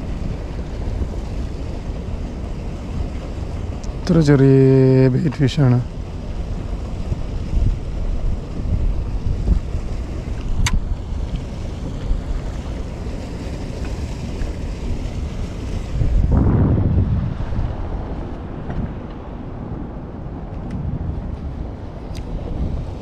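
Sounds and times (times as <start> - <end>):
wind buffeting microphone: 0.0 - 23.0
sharp click: 10.5 - 10.8.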